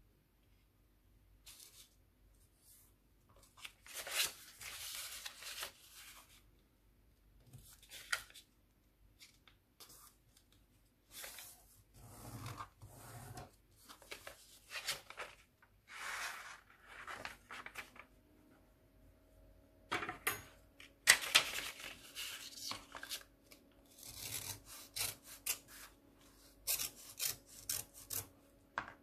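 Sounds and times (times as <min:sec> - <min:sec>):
paper rustling and crinkling: 0:03.4 - 0:06.4, 0:13.8 - 0:18.2, 0:21.1 - 0:23.7.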